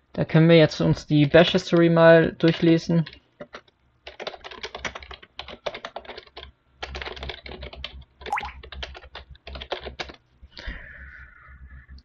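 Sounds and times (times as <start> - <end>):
typing on computer keyboard: 2.5 - 10.2.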